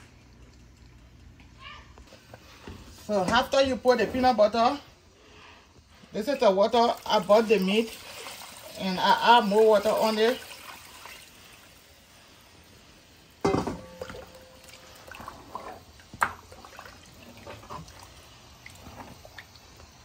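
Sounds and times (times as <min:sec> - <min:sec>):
soup sloshing and dripping: 0:06.2 - 0:08.9, 0:09.7 - 0:11.7, 0:13.8 - 0:20.0.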